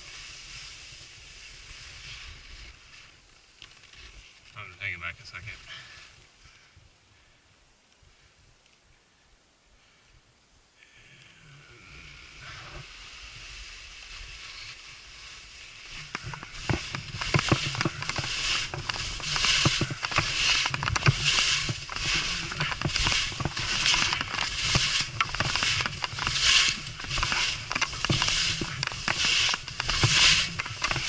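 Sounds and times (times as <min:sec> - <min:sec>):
skis scraping on hard snow: 0:00.0 - 0:05.8, 0:12.1 - 0:31.0.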